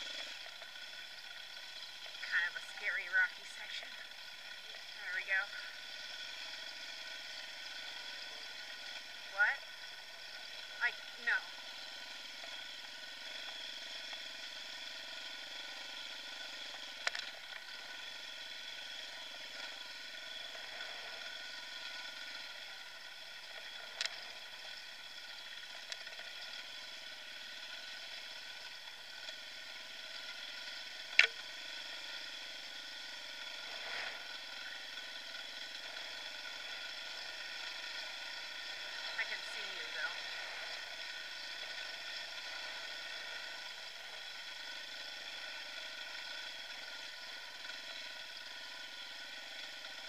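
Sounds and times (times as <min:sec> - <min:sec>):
dirt bike engine running: 0:00.0 - 0:50.0.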